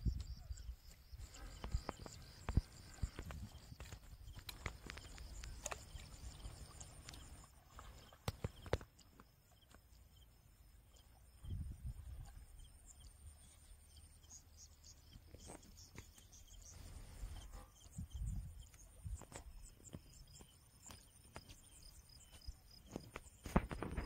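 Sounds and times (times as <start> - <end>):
faint sharp clicks: 1.6 - 6.1
wind buffeting microphone: 11.4 - 12.3, 17.3 - 19.2.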